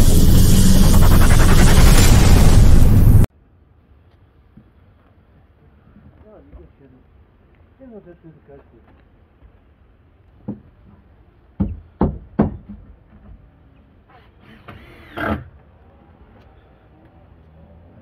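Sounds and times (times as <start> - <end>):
knocks on wooden boards: 11.6 - 12.9.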